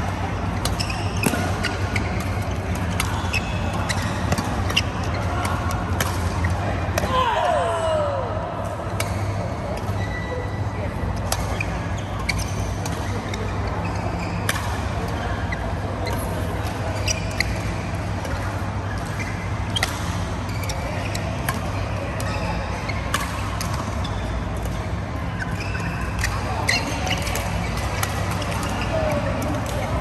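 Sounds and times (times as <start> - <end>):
shoes squeaking on court: 0.0 - 7.0, 8.9 - 30.0
racket striking shuttlecock: 0.6 - 7.1.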